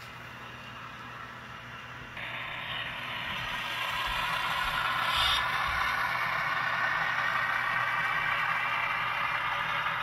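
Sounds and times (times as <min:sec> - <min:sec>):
model train rattling on track: 0:02.2 - 0:10.0.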